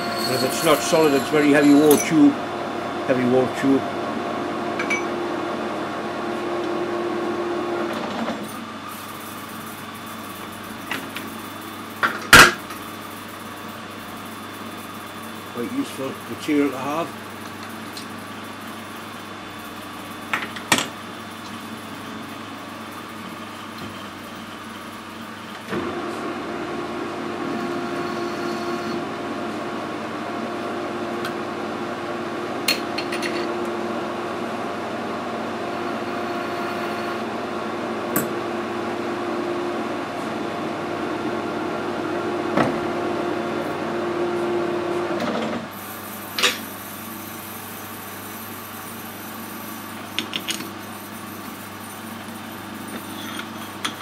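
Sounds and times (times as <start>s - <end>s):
metal lathe humming: 0.0s - 8.2s, 22.5s - 42.6s.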